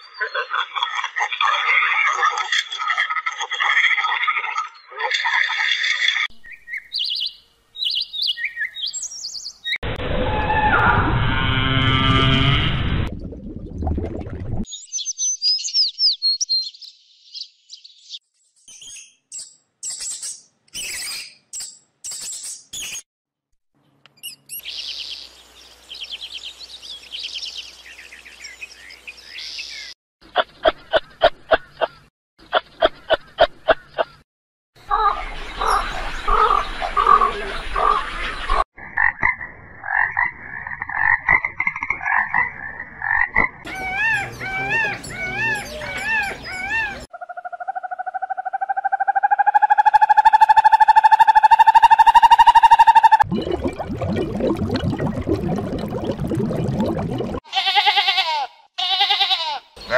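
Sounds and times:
bird chirps: 0:06.3 - 0:09.8, 0:14.7 - 0:23.0, 0:43.7 - 0:47.1
steady animal call: 0:43.7 - 0:53.2
wavering cat-like calls: 0:43.7 - 0:53.2.

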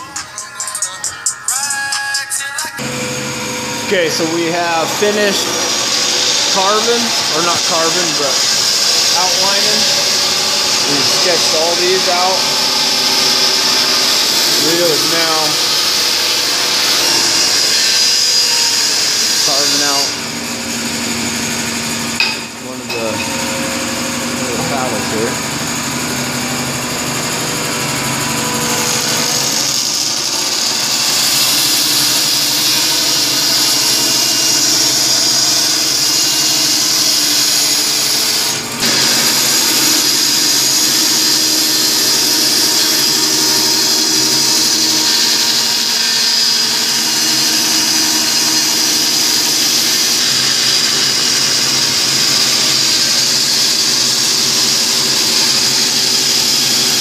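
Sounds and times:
band saw cutting wood: 0:02.8 - 0:57.0.

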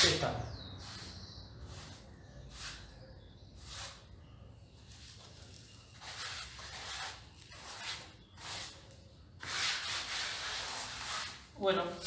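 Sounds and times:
hand float scraping plaster: 0:05.0 - 0:08.8, 0:09.4 - 0:11.5.

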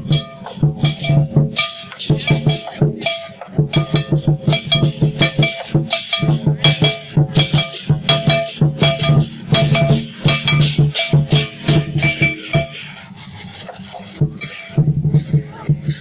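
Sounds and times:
percussive drum beat: 0:00.0 - 0:16.0.

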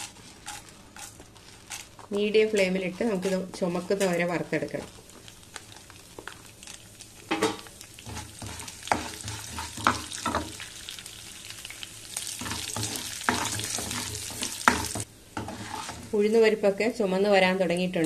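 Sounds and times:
spatula scraping and knocking pan: 0:00.0 - 0:05.0, 0:07.3 - 0:10.7, 0:12.3 - 0:16.2
lentils sizzling in oil: 0:00.0 - 0:18.0.

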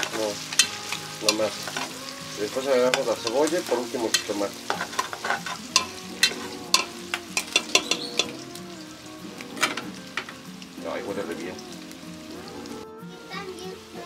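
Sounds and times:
meat and onion sizzling in a pot: 0:00.0 - 0:14.0
spoon clicking and scraping a pot: 0:00.6 - 0:01.9, 0:04.1 - 0:08.4.

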